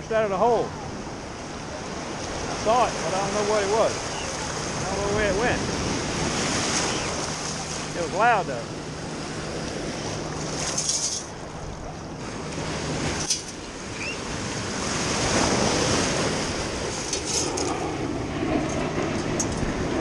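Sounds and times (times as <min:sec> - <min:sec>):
shallow surf washing: 0:00.0 - 0:20.0
wind buffeting microphone: 0:00.0 - 0:20.0.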